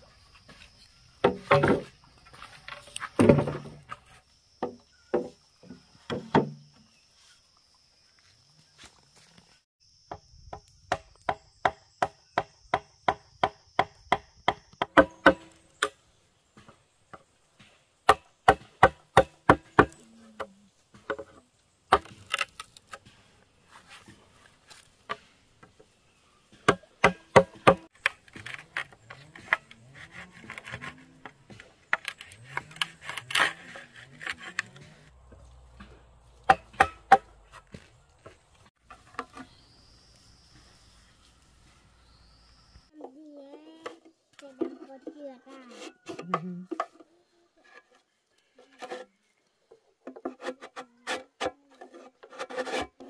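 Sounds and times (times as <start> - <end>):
bamboo chopped with a blade: 1.2 - 1.8, 10.9 - 16.0, 17.6 - 21.3, 21.9 - 23.2, 26.6 - 35.1, 35.7 - 37.9.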